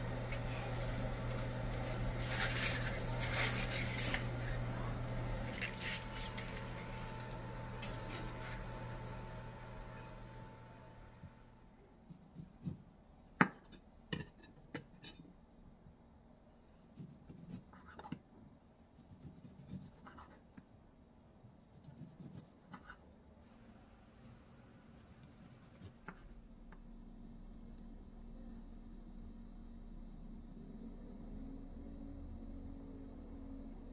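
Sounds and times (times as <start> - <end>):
low steady hum: 0.0 - 33.9
soft scraping and rubbing: 1.8 - 4.6.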